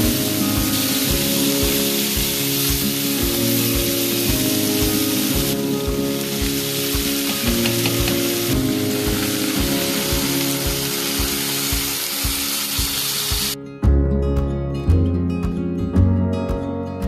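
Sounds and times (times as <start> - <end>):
meat and vegetables sizzling in pan: 0.0 - 13.6
wine poured into hot pan: 0.0 - 13.6
background music with steady beat: 0.0 - 17.0.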